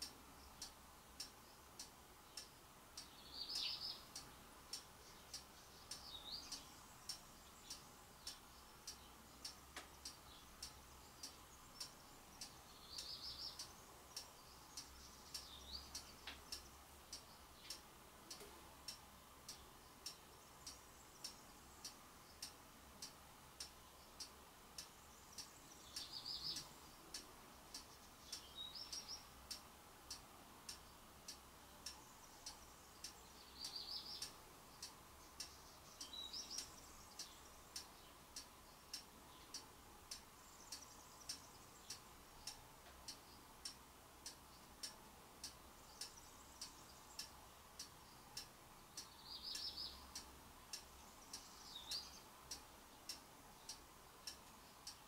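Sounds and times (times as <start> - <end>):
faint steady ticking: 0.0 - 55.0
high bird chirps: 49.0 - 50.1.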